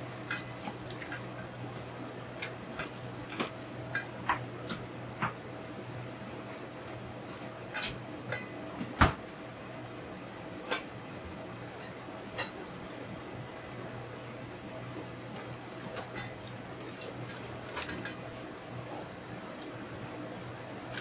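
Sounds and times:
utensils and dishes clicking: 0.0s - 5.4s, 11.7s - 13.6s, 15.4s - 21.0s
steady low hum: 0.0s - 21.0s.

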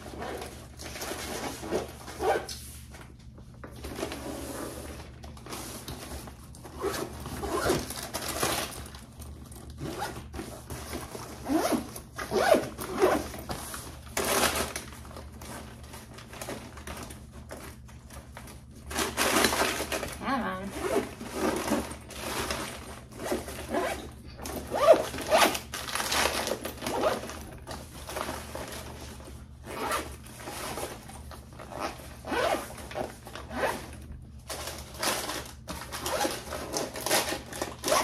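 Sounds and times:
bags rustling: 0.0s - 38.0s
zippers being drawn open: 31.7s - 32.6s.

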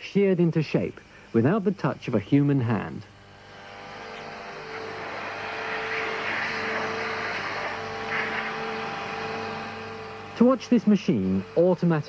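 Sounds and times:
milling machine whine: 0.0s - 12.0s
rushing machining noise: 3.1s - 12.0s.

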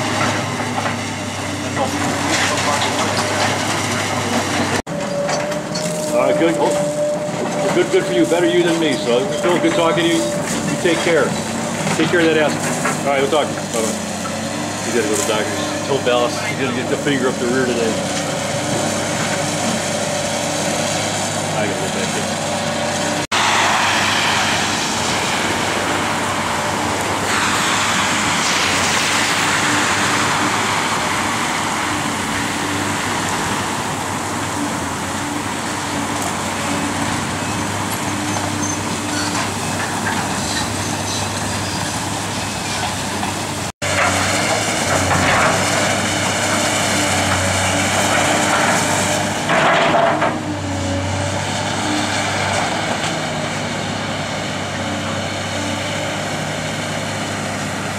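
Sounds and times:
excavator diesel engine running: 0.0s - 57.9s
road traffic rushing past: 0.0s - 57.9s.

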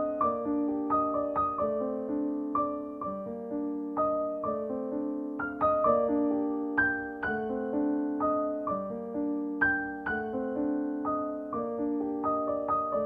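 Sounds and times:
gentle piano melody: 0.0s - 13.0s.

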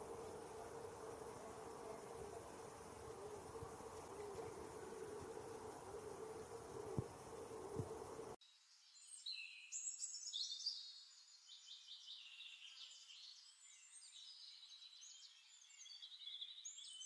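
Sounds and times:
low buzzing hum: 0.0s - 8.4s
songbird chirping and trilling: 0.0s - 17.0s.

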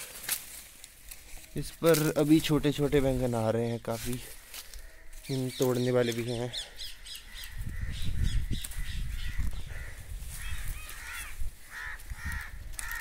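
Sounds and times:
plant leaves rustling: 0.0s - 6.5s, 8.5s - 13.0s
crows cawing: 4.3s - 13.0s.

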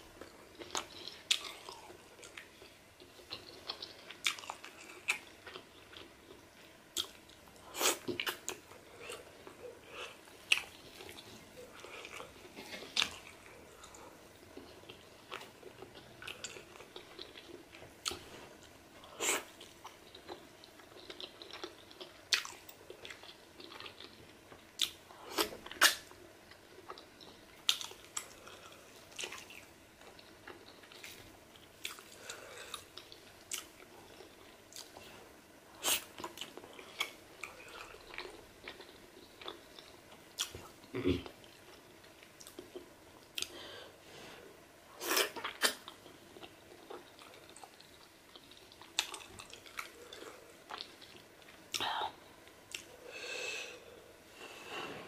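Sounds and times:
wet chewing and mouth smacks: 19.4s - 35.0s, 45.2s - 51.9s.

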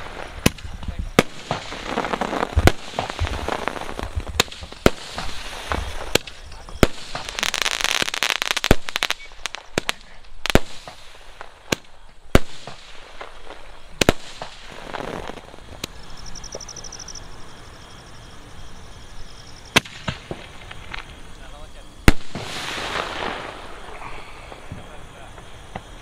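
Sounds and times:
fireworks bangs: 0.0s - 17.1s, 19.6s - 26.0s
fireworks crackling: 0.0s - 17.4s, 19.3s - 26.0s.

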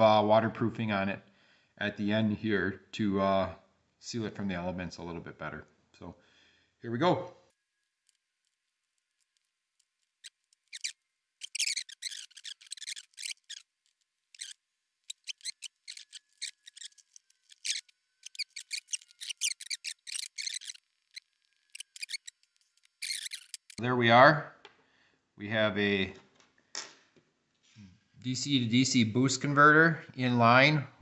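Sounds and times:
tools snipping and scraping wire: 8.0s - 23.8s.

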